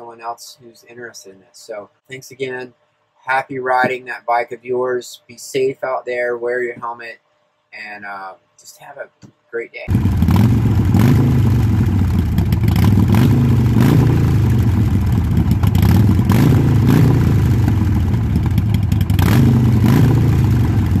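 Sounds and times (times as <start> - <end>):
motorcycle engine running: 9.9 - 21.0.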